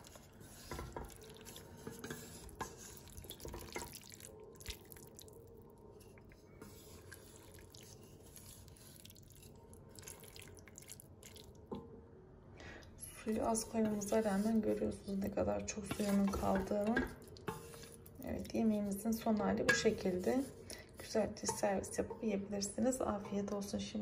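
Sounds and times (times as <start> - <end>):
spatula scraping in a pot: 0.0 - 4.0, 6.0 - 9.6, 13.2 - 18.1, 19.6 - 21.7
light taps against a pot: 21.4 - 22.2.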